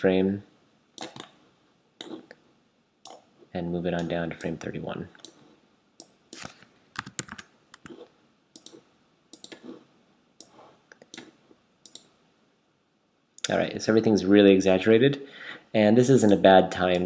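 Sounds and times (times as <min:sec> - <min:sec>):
mouse and keyboard clicks: 0:01.0 - 0:01.4, 0:06.0 - 0:09.8, 0:10.4 - 0:12.1.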